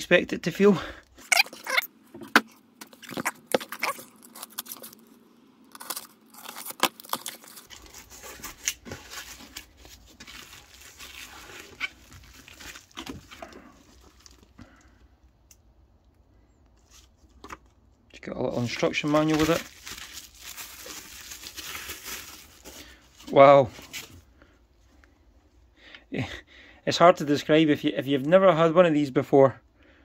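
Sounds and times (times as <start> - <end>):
cardboard scraping and tearing: 1.3 - 5.1, 5.7 - 14.4, 18.5 - 22.7
plastic wrap crinkling: 2.8 - 14.6, 18.5 - 24.2.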